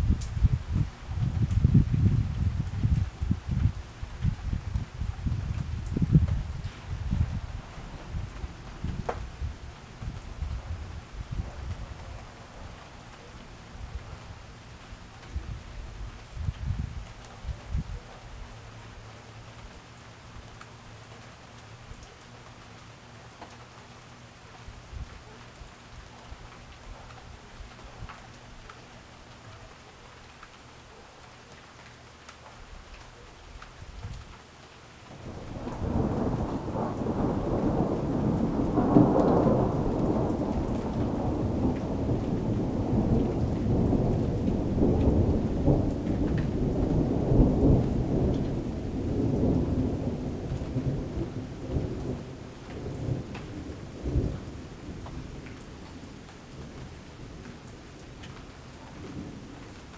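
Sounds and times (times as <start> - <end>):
thunder rumbling: 0.0 - 12.2, 35.1 - 55.6
steady rain falling: 0.0 - 59.9.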